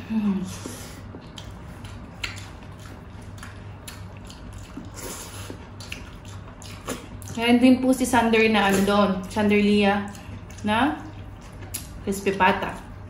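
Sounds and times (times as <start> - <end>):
faint low hum: 0.0 - 13.0
wet chewing and lip smacks: 0.6 - 7.4, 8.6 - 12.0.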